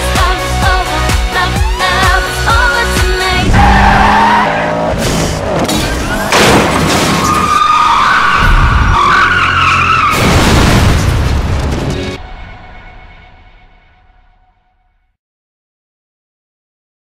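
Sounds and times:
music: 0.0s - 4.0s, 11.5s - 15.2s
race car engines: 2.8s - 10.1s
tyres squealing in a skid: 3.5s - 10.2s
loud crash hit: 5.1s - 7.6s, 10.1s - 14.5s.

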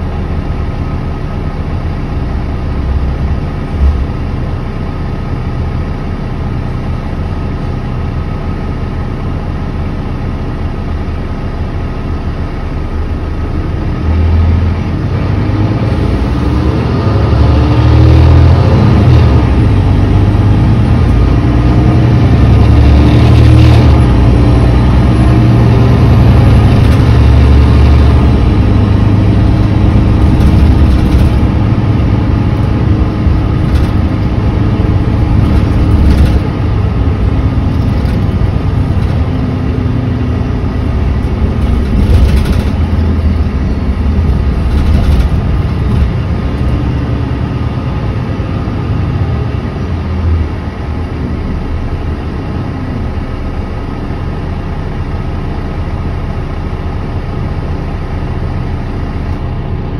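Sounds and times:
bus diesel engine droning: 0.0s - 59.9s
engine knocks: 29.9s - 39.5s, 40.8s - 47.0s.

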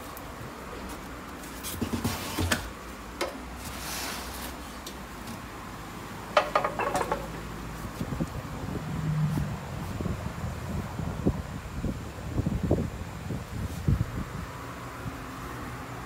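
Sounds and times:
knocks and scrapes of handling: 0.8s - 5.5s, 6.4s - 8.1s.

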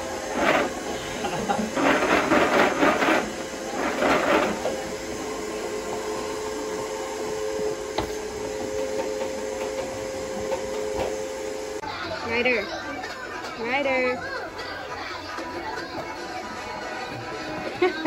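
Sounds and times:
two-tone hum: 0.0s - 11.8s.

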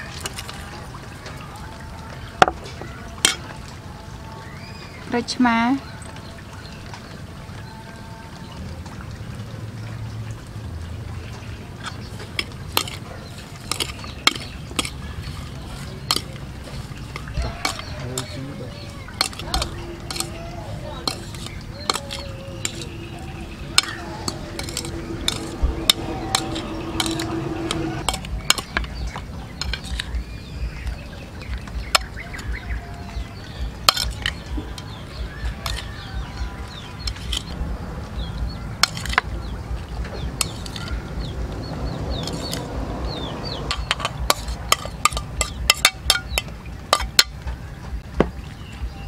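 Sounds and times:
metal spoon scraping metal tray: 11.8s - 18.4s, 19.1s - 20.4s, 21.0s - 29.0s, 29.6s - 30.2s, 33.9s - 35.0s, 35.6s - 35.9s, 37.0s - 37.6s, 38.8s - 39.3s, 40.4s - 41.0s, 42.1s - 42.7s, 43.5s - 47.2s
low background rumble: 18.7s - 49.0s.

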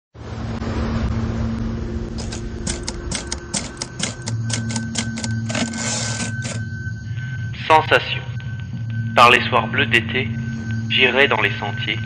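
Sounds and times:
low steady hum: 0.2s - 12.0s
typewriter keys clacking: 2.2s - 6.6s.

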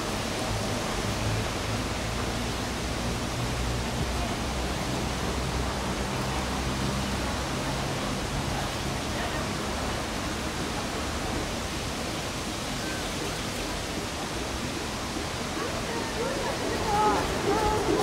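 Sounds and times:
water rushing: 0.0s - 18.0s
boat diesel engine hum: 13.7s - 18.0s.

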